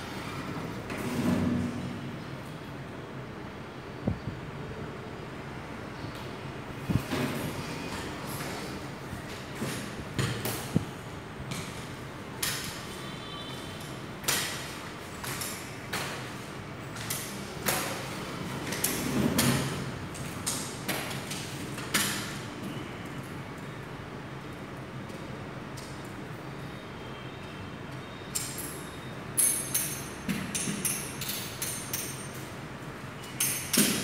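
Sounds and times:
crutches and feet on tiled floor: 0:06.1 - 0:23.7.

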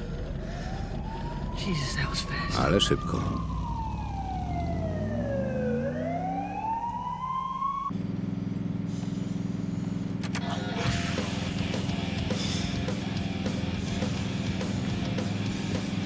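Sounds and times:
emergency vehicle siren wailing: 0:00.0 - 0:08.0.

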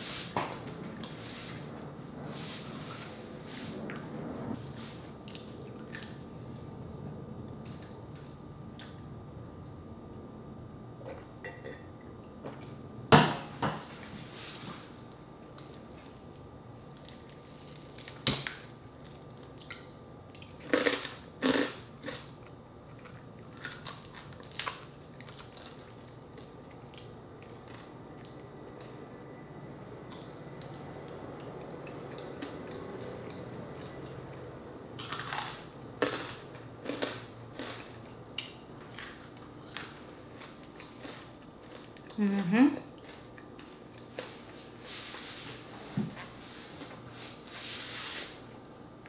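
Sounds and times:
crunching fried pork skin: 0:16.8 - 0:19.8, 0:23.0 - 0:26.5, 0:35.0 - 0:38.0.

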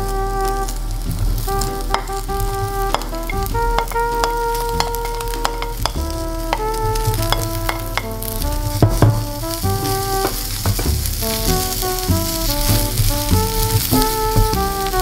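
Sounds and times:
background music with held notes: 0:00.0 - 0:15.0
vegetables sizzling in frying pan: 0:01.8 - 0:15.0
wooden spatula clicking: 0:01.9 - 0:02.2, 0:02.9 - 0:08.4.

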